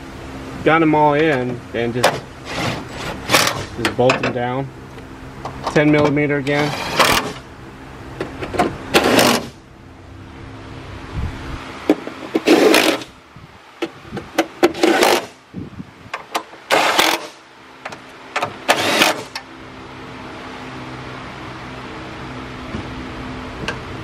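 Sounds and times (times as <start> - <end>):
cordless power driver running: 18.6 - 19.4.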